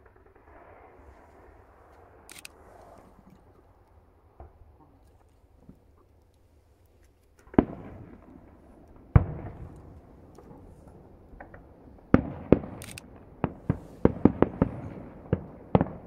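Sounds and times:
distant firework bangs: 0:07.4 - 0:16.0
faint firework pops: 0:07.4 - 0:16.0.

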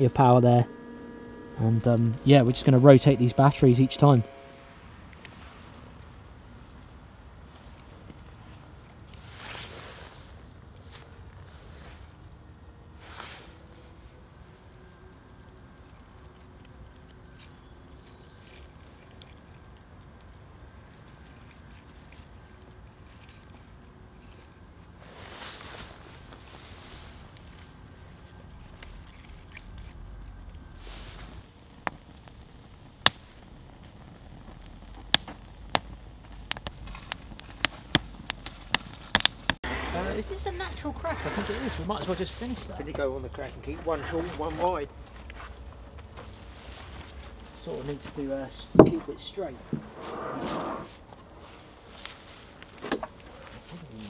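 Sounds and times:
small fire crackling: 0:04.7 - 0:54.0
kindling sticks clicking: 0:31.8 - 0:39.6.

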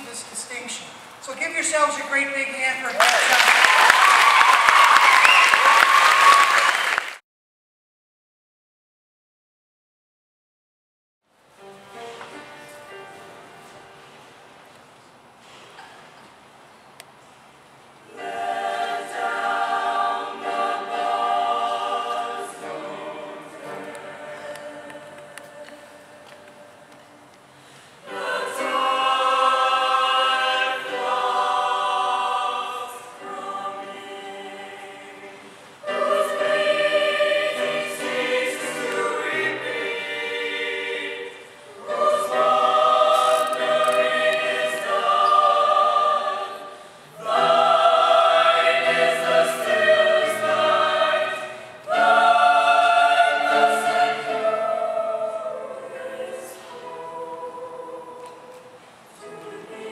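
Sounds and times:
choir singing held chords: 0:18.0 - 0:59.9.

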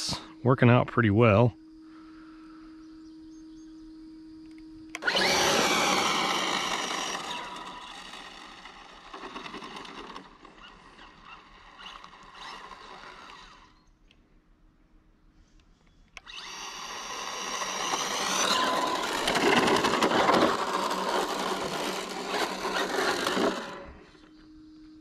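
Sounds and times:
electric motor whine: 0:02.8 - 0:13.9, 0:16.2 - 0:25.0.

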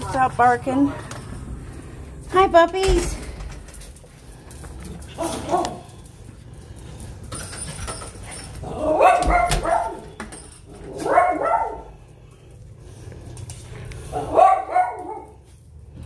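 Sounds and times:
small dogs barking: 0:05.1 - 0:06.0, 0:08.8 - 0:10.2, 0:10.9 - 0:12.0, 0:14.1 - 0:15.4.

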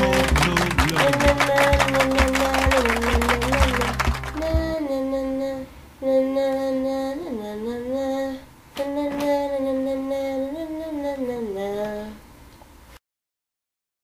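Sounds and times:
music track with a beat: 0:00.0 - 0:04.7
woman humming a slow tune: 0:00.0 - 0:12.2.

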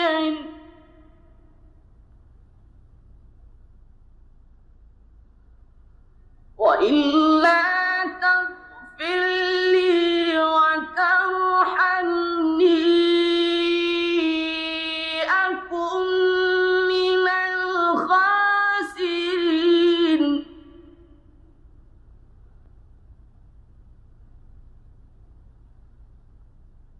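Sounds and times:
faint low recording hum: 0:00.0 - 0:26.9
man chanting recitation: 0:06.6 - 0:21.1.

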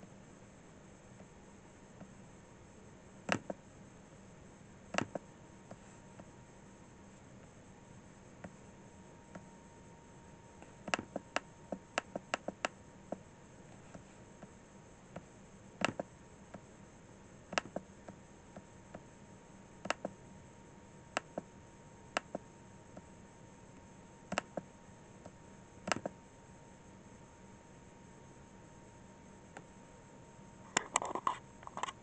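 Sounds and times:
faint electrical hum: 0:00.0 - 0:32.0
computer mouse clicks: 0:03.3 - 0:03.6, 0:04.9 - 0:06.3, 0:10.6 - 0:14.5, 0:15.1 - 0:16.6, 0:17.5 - 0:18.2, 0:19.8 - 0:20.2, 0:21.1 - 0:21.5, 0:22.1 - 0:23.1, 0:24.3 - 0:26.2, 0:30.7 - 0:32.0.

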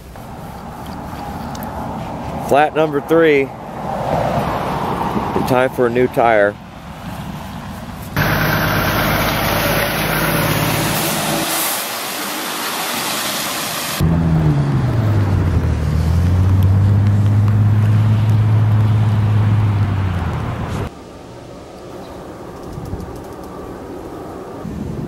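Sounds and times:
traffic hiss on wet road: 0:07.0 - 0:14.0
low engine drone: 0:08.2 - 0:12.6, 0:13.8 - 0:24.9.

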